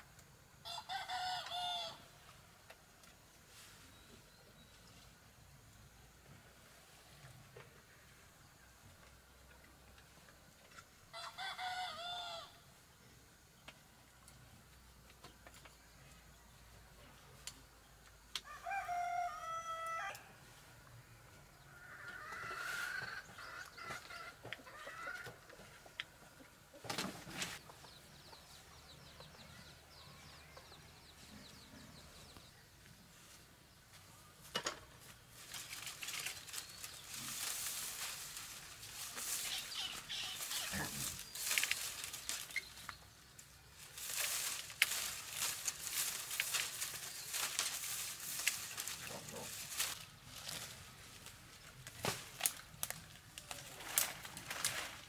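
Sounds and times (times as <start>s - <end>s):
rooster crowing: 0.6s - 2.0s, 11.1s - 12.6s, 18.4s - 20.3s
dry rustling and crackling: 35.0s - 55.0s.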